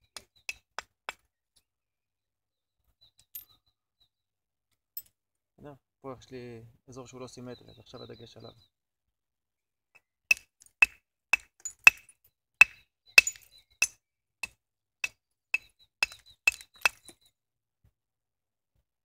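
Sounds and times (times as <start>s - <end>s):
flint knapping clinks: 13.2s - 14.0s.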